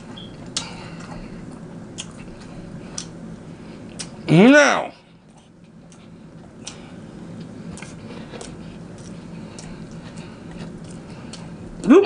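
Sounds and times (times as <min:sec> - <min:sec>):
faint steady hum: 0:00.0 - 0:12.0
chewing with wet mouth clicks: 0:01.9 - 0:03.2.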